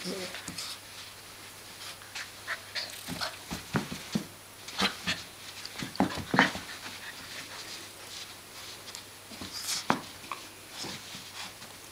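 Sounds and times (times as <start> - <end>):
puppy scuffling: 0.0 - 11.9.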